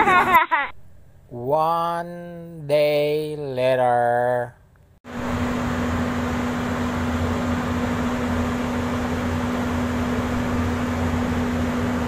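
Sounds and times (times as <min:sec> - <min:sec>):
ship machinery humming: 0:05.1 - 0:12.0.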